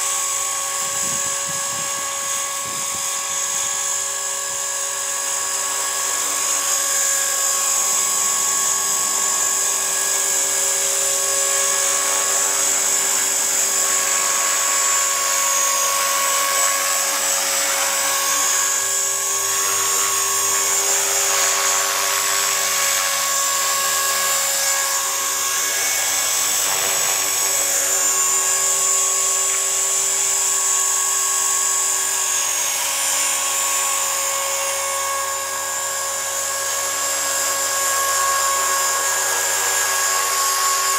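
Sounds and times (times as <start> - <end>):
high-pitched motor whine: 0.0 - 40.9
rotor blades whirring: 0.0 - 40.9.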